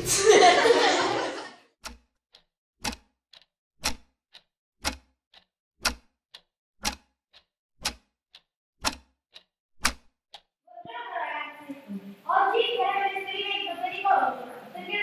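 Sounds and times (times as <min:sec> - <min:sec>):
clock ticking: 0:01.8 - 0:10.5.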